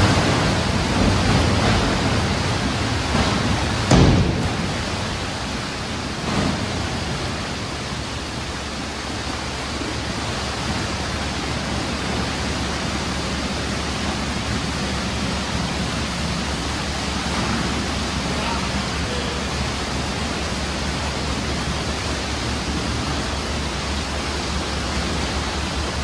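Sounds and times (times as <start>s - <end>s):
wet garbage pouring: 0.0s - 26.0s
loud thump: 3.1s - 5.1s.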